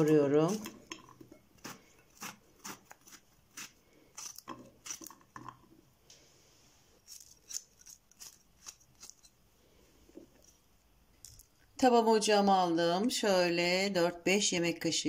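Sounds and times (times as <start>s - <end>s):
knife cutting zucchini: 0.0s - 5.4s, 7.0s - 9.4s.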